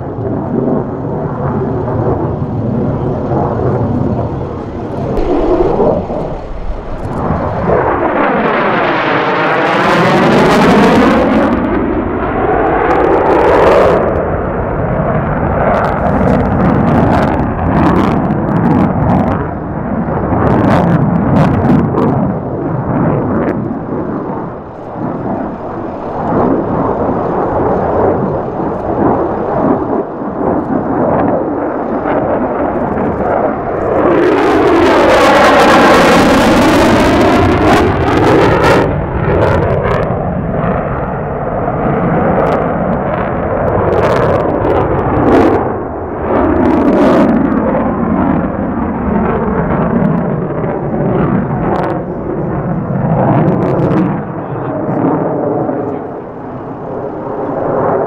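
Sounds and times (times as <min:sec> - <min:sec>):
jet flying past: 0:00.0 - 0:58.0
rough crackling jet noise: 0:00.0 - 0:58.0.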